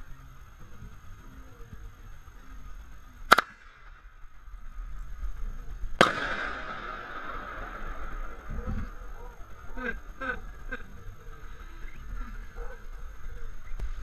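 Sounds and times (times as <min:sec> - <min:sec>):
sharp crack: 0:03.2 - 0:04.4, 0:05.8 - 0:10.8.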